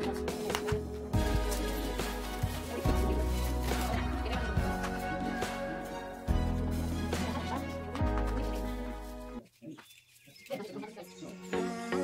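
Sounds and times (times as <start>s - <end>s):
background music sustained notes: 0.0s - 9.4s.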